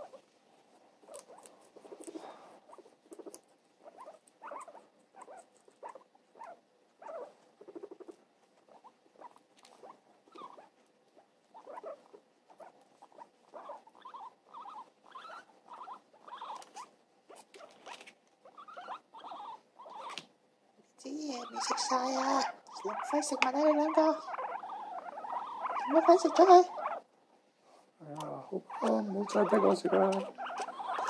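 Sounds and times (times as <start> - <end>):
guinea pigs squeaking: 0.0 - 20.4, 21.0 - 31.0.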